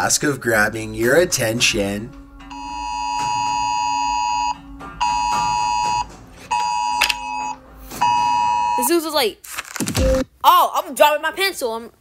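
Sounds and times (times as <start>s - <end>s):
emergency alert tone blasts: 2.5s - 8.9s.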